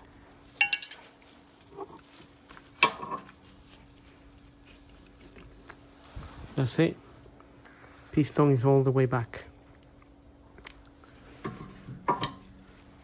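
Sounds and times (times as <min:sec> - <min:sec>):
metal jangle ringing: 0:00.6 - 0:01.1
steel tools clinking and rattling: 0:00.6 - 0:01.2.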